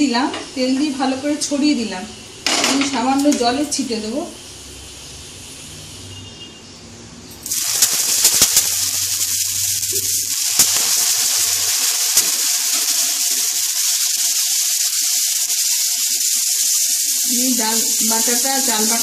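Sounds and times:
water sizzling on a hot griddle: 7.3 - 19.0.

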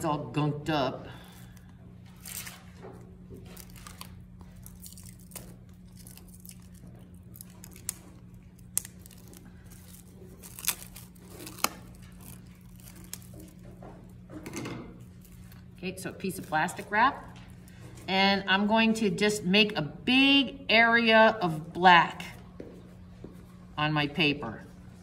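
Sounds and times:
low steady hum: 0.0 - 25.0
plastic wrap crinkling and tearing: 2.0 - 13.6.

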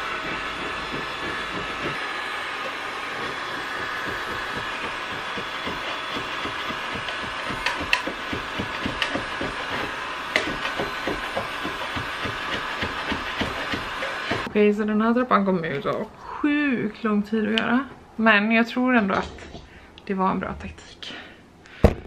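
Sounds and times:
power tool whining: 0.0 - 14.5.

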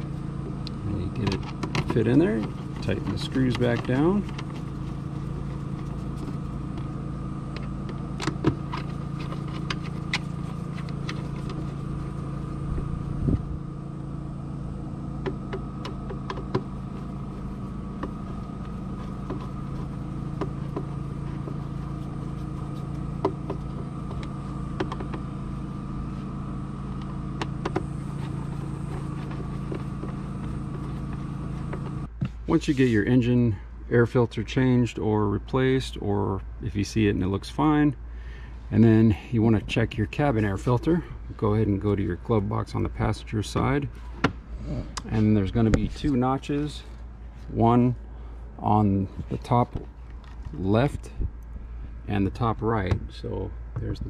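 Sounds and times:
engine idling: 0.0 - 32.2.

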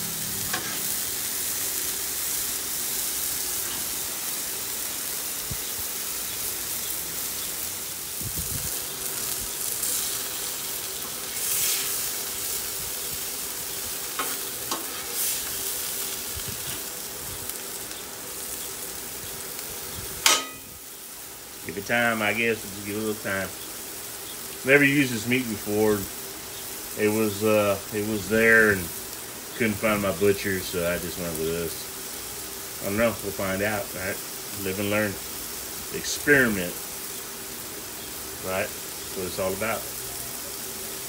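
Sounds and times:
metal spatula scraping griddle: 0.0 - 1.2, 11.0 - 12.1, 14.1 - 15.6
meat sizzling on griddle: 0.0 - 41.0.

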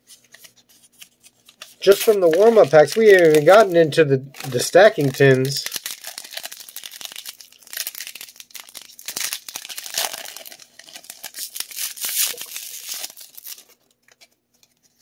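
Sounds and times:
foil wrapper tearing and crinkling: 1.5 - 3.8, 4.4 - 13.8.

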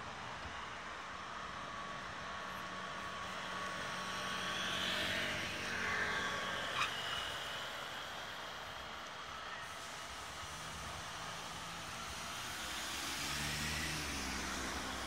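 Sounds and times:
road traffic noise: 0.0 - 15.0
vehicle passing: 10.4 - 15.0.

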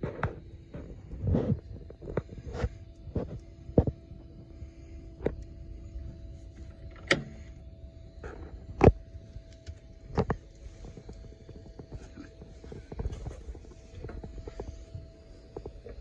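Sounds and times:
faint steady hum: 0.0 - 16.0
knocks and clicks in cab: 6.9 - 7.4.

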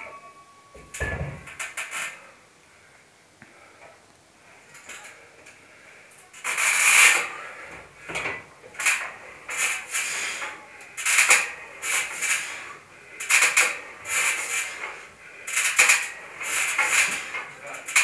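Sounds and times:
cable machine rasping: 6.4 - 18.0.

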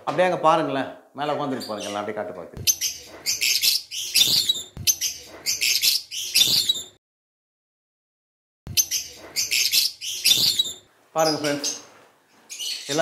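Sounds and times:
lovebirds chirping: 1.4 - 7.0, 8.7 - 13.0.

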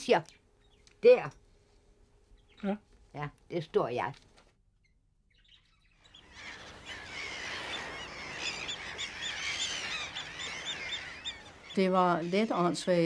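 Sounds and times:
gulls calling: 4.8 - 13.0.

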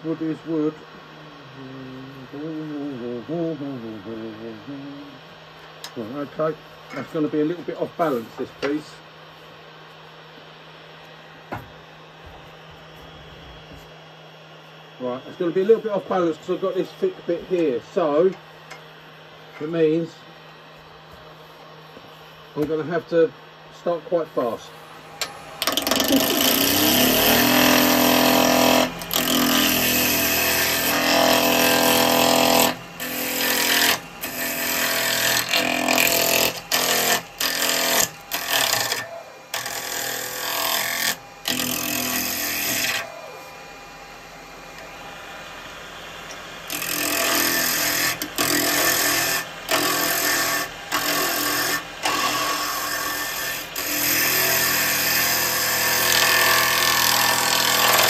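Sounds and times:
lathe steady hum: 0.0 - 58.0
lathe tool cutting wood: 22.6 - 58.0.

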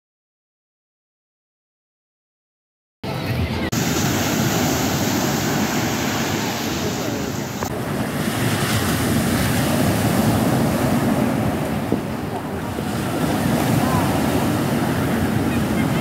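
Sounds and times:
surf breaking on beach: 3.7 - 16.0
wind buffeting microphone: 3.8 - 16.0.

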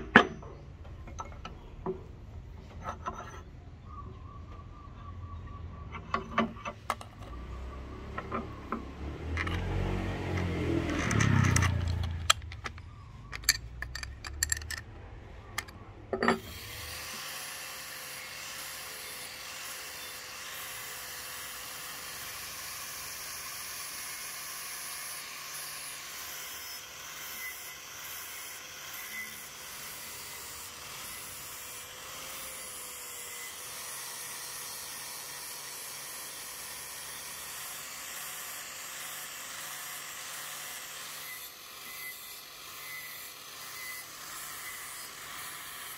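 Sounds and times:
clicks fitting grinder disc: 6.0 - 7.4, 8.1 - 14.9, 15.5 - 16.7
angle grinder sanding metal: 16.3 - 45.9.

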